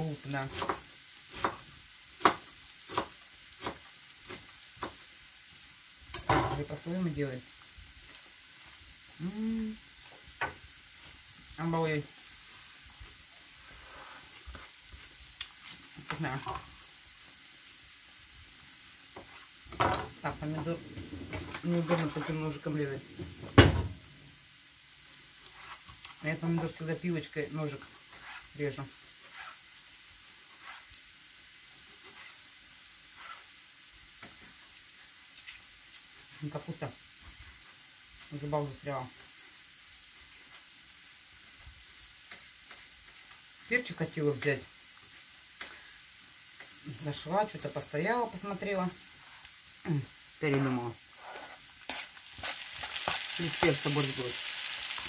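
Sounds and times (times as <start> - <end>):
steady hiss: 0.0 - 55.0
woman humming: 9.2 - 9.8.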